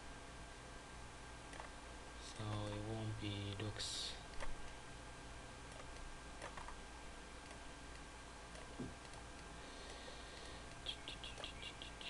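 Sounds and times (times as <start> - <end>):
room tone hum and hiss: 0.0 - 12.0
computer mouse clicks: 1.5 - 1.7, 5.7 - 6.8.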